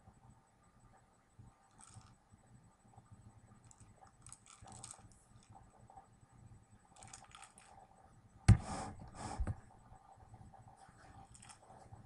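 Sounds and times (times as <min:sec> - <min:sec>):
kibble rattling in plastic ball: 0:01.7 - 0:02.2, 0:03.7 - 0:05.5, 0:07.0 - 0:07.8, 0:11.2 - 0:11.7.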